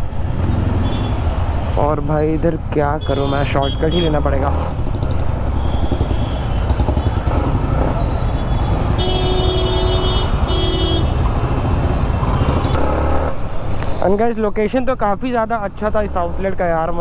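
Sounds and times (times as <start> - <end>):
motorcycle engine rumbling: 0.0 - 14.0
vehicle horn honking: 8.3 - 11.2.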